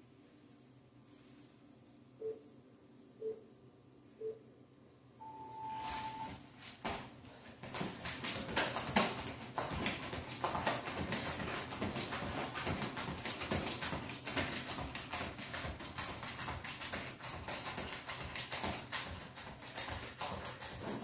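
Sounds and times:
sneakered footfalls on hard floor: 0:06.6 - 0:21.0.

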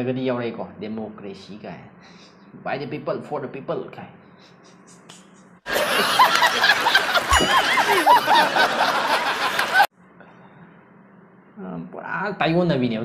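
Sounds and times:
people laughing loudly: 0:05.7 - 0:09.9.

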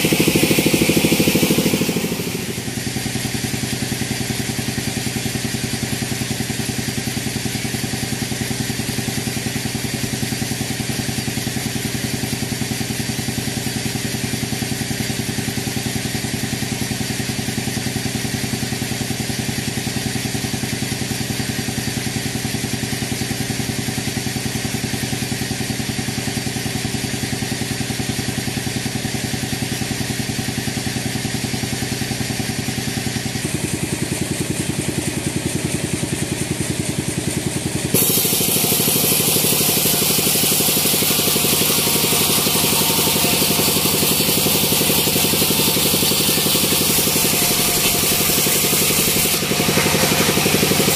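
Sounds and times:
sawmill engine humming: 0:00.0 - 0:04.3, 0:32.4 - 0:50.9.

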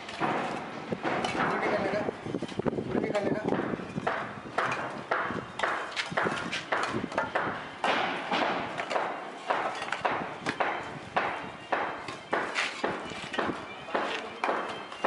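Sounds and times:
rough knocks and scrapes: 0:00.0 - 0:14.8.

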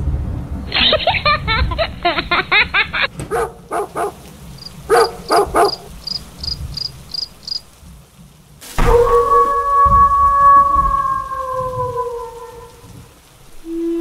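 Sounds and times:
low steady rumble: 0:00.0 - 0:08.2
dog barking: 0:03.2 - 0:04.2, 0:04.8 - 0:06.1
crickets chirping: 0:03.5 - 0:07.8.

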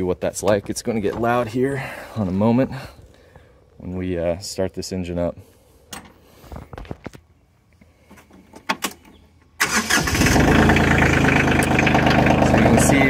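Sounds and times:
diesel engine starting and idling: 0:09.6 - 0:13.0.

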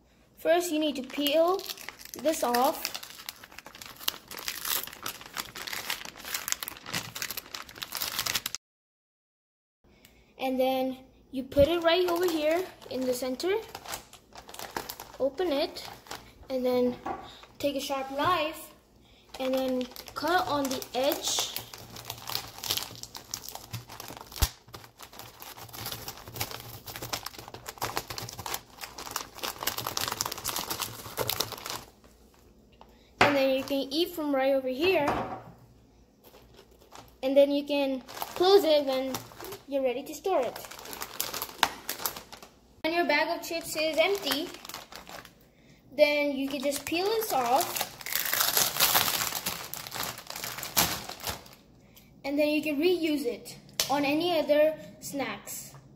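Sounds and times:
plastic film crinkling: 0:00.7 - 0:08.6, 0:11.5 - 0:16.6, 0:19.3 - 0:33.9, 0:36.2 - 0:42.6, 0:43.2 - 0:45.4, 0:46.4 - 0:51.7.

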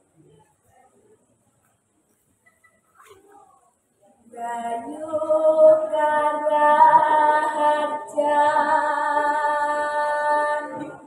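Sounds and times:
girl singing unaccompanied: 0:04.2 - 0:11.0.

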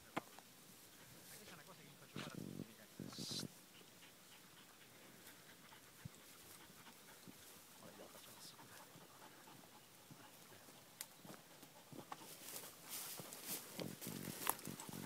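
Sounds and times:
dog panting: 0:03.6 - 0:13.3.

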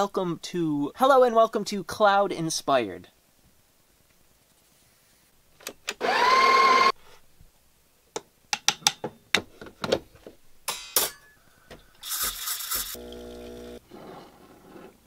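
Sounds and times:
grinder motor whine: 0:06.0 - 0:06.9, 0:12.8 - 0:13.8
short hiss: 0:12.0 - 0:13.0.

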